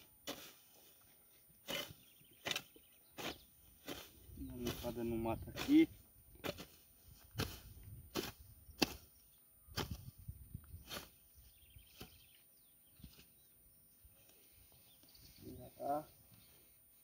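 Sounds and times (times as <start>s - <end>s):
hoe chopping into soil: 0.0s - 0.6s, 1.6s - 10.1s, 10.8s - 11.2s.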